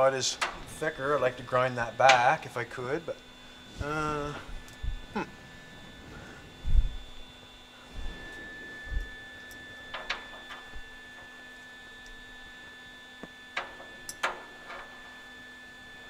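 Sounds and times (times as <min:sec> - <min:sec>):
high-pitched electrical hum: 0:00.0 - 0:16.0
soft low thuds: 0:06.6 - 0:07.1.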